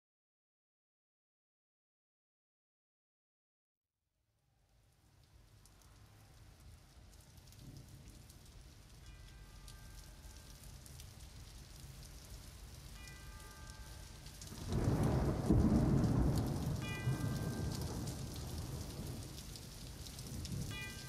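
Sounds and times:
steady rain: 4.5 - 21.0
thunder rumble: 13.4 - 21.0.

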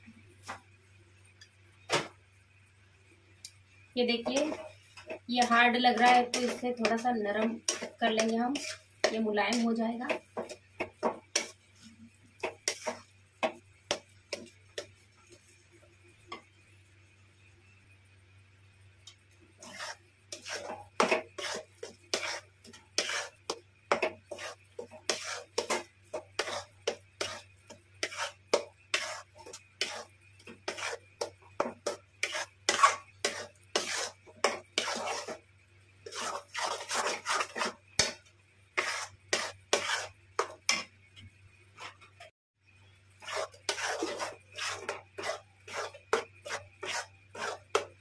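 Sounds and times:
metal spatula scraping a pan: 4.1 - 14.9, 19.6 - 35.4, 36.0 - 38.2, 38.8 - 40.9, 43.1 - 48.0.

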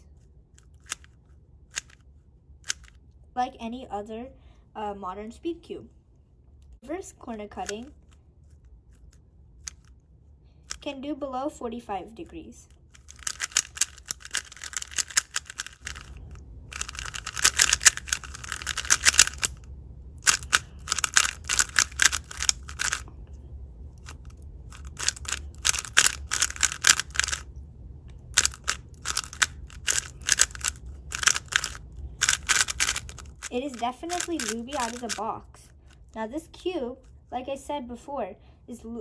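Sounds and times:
speed cube layers clacking: 0.6 - 2.0, 2.6 - 3.0, 7.6 - 8.0, 12.9 - 19.6, 20.2 - 23.0, 24.0 - 27.5, 28.3 - 35.2.

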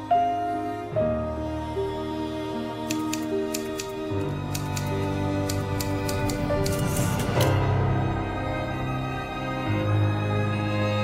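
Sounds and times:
sharp clicks: 2.8 - 7.6.

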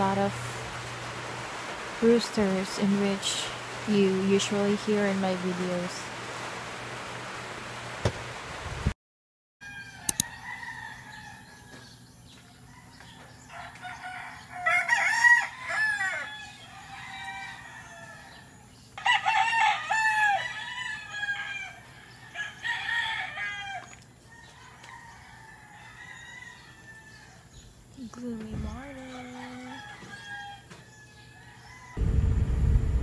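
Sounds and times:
roosters crowing: 9.6 - 27.8, 28.7 - 32.0.

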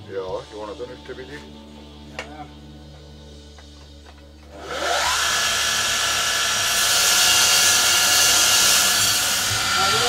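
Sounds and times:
electric motor whine: 4.4 - 10.0.

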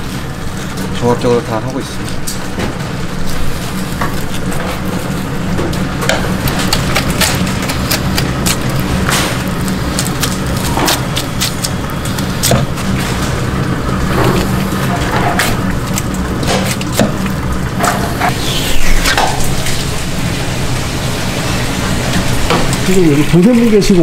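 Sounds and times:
steady low hum: 0.0 - 24.0
running water: 15.6 - 24.0.

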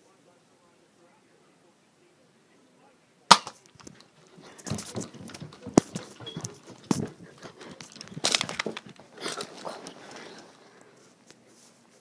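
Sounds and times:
phone handling rustles and clicks: 3.6 - 10.0.

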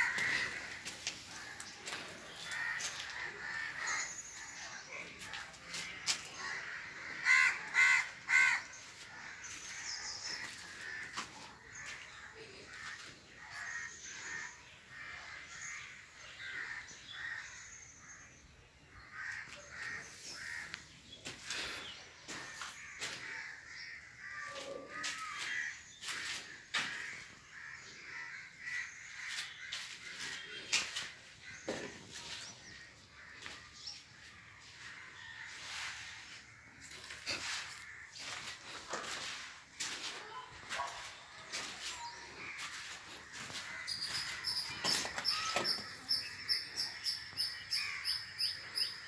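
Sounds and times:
crow cawing: 0.0 - 4.2, 5.8 - 9.6, 22.4 - 30.3
bird calls: 36.7 - 49.0.

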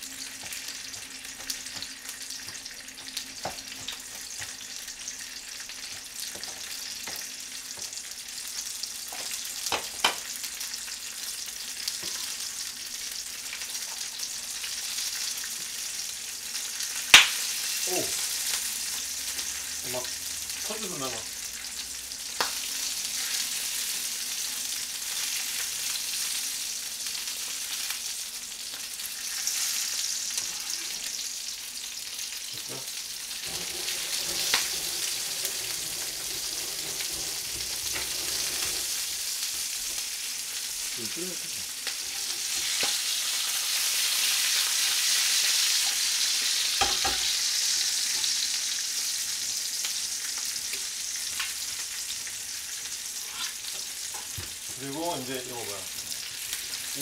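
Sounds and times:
broth boiling: 32.5 - 43.2.

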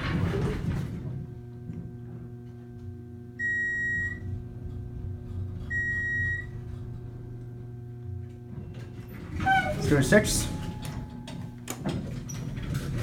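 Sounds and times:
elevator hum: 0.0 - 13.0.

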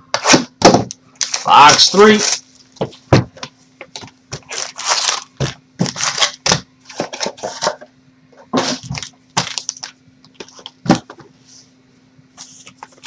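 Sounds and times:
plastic wrapping crinkling: 1.2 - 3.0, 3.8 - 7.6, 8.6 - 10.8.

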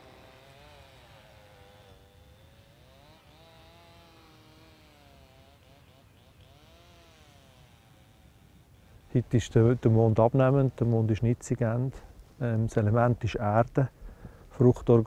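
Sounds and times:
distant small engine running: 0.0 - 9.2.

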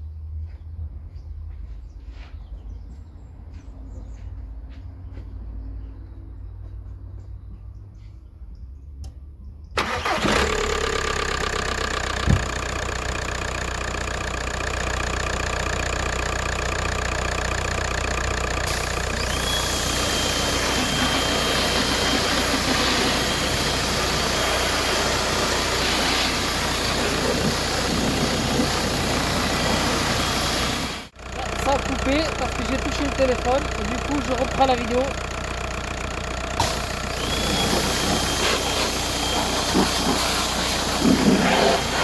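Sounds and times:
car engine idling: 9.7 - 42.0
pressure washer motor and pump: 9.8 - 17.2, 18.6 - 35.8, 36.4 - 42.0
water spray hissing: 18.7 - 31.1, 36.6 - 42.0.

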